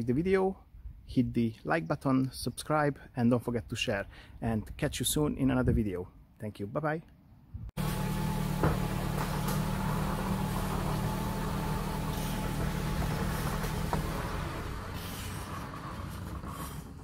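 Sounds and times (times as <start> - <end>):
motor humming: 7.8 - 17.0.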